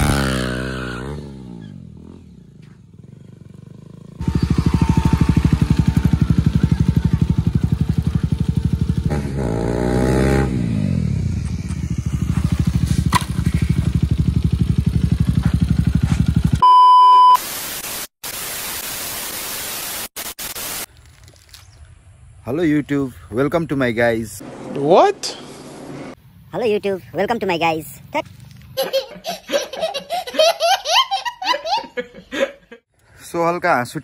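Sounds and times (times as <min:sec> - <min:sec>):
motorcycle engine revving: 0:00.0 - 0:16.6
high test-tone beep: 0:16.6 - 0:17.4
tv static hiss: 0:17.4 - 0:20.9.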